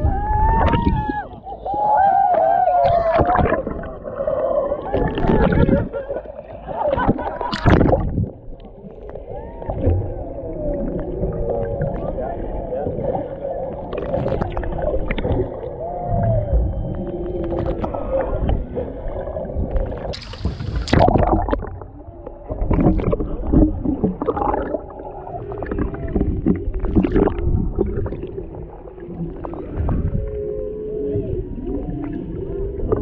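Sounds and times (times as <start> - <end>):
splashing and bubbles: 0.0 - 33.0
underwater water noise: 0.0 - 33.0
whale song underwater: 0.0 - 33.0
underwater clicks: 7.0 - 8.8, 19.7 - 24.9.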